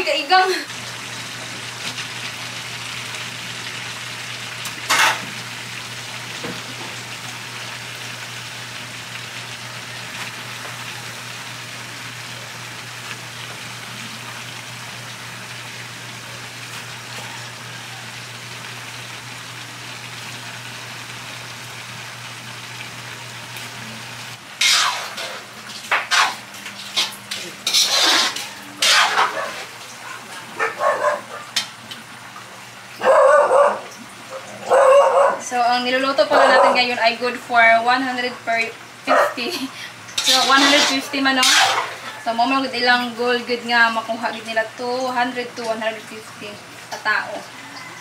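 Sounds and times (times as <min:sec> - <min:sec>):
stir-fry sizzling in wok: 0:00.0 - 0:34.8, 0:35.4 - 0:48.0
metal utensils clattering: 0:40.2 - 0:42.2.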